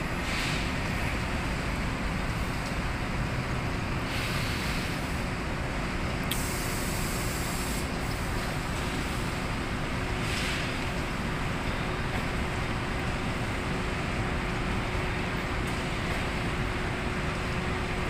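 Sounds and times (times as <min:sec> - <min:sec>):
machinery rumble and hiss: 0:00.0 - 0:18.0.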